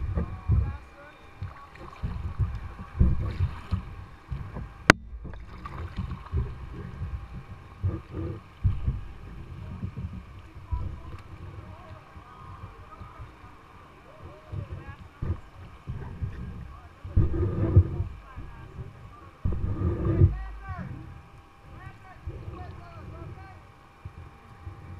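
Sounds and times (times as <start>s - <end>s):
water lapping against kayak hull: 0.0s - 24.9s.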